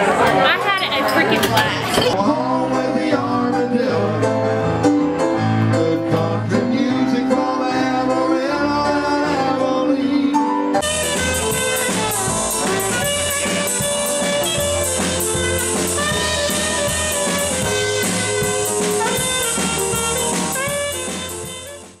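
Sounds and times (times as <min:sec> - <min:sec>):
drum kit with cymbals: 0:10.8 - 0:22.0
saxophone jazz solo: 0:10.8 - 0:22.0.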